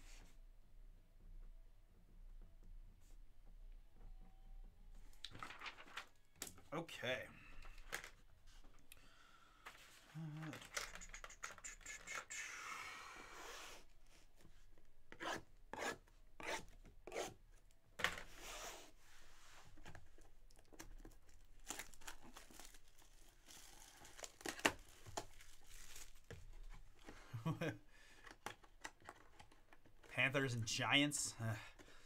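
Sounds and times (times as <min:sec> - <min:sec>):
plastic wrap crinkling: 0:05.2 - 0:06.2, 0:20.5 - 0:27.0.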